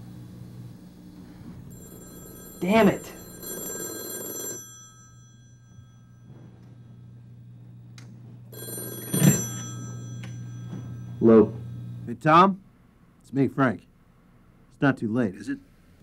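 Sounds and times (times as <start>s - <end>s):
telephone ringing: 1.4s - 7.8s, 8.5s - 12.1s.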